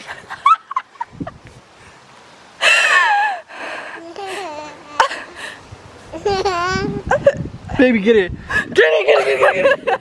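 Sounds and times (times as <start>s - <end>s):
baby babbling: 4.0s - 5.4s, 6.1s - 7.0s.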